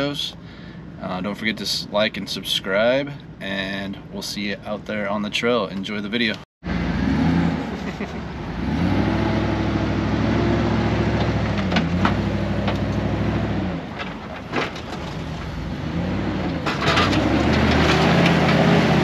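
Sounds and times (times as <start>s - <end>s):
engine working under load: 6.6s - 19.0s
sharp clicks and crunches: 16.4s - 18.8s.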